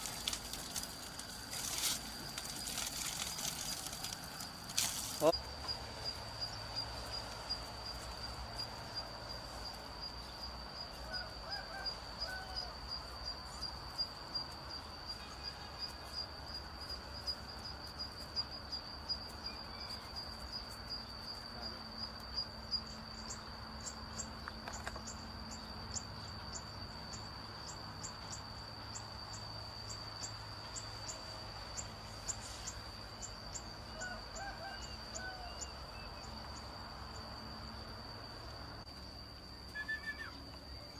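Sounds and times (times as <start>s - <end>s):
high-pitched insect trill: 0.0s - 40.9s
insect chirping: 0.0s - 40.9s.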